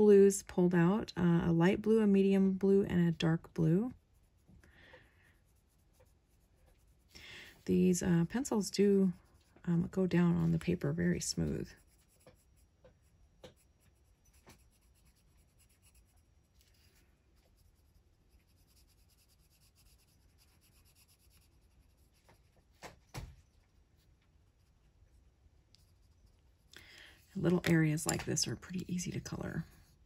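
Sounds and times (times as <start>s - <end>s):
colored pencil scratching on paper: 2.7s - 4.6s, 5.2s - 7.2s, 7.8s - 22.6s.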